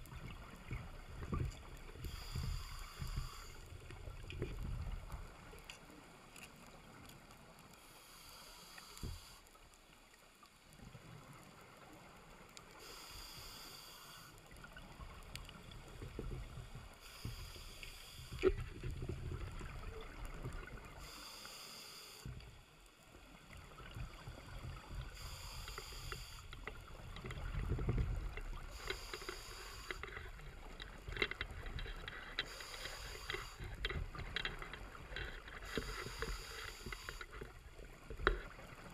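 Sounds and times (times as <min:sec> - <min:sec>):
regulator breathing hiss: 0:02.0 - 0:03.8, 0:07.8 - 0:09.6, 0:12.8 - 0:14.4, 0:17.0 - 0:18.4, 0:21.0 - 0:22.4, 0:25.0 - 0:26.9, 0:28.6 - 0:30.2, 0:32.4 - 0:33.8, 0:35.6 - 0:37.4.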